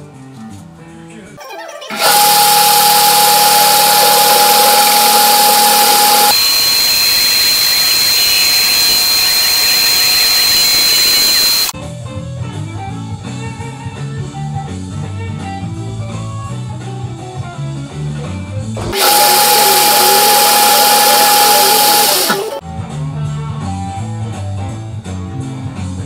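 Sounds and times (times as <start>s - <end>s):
metal lathe whining: 1.9s - 11.7s, 18.8s - 22.6s.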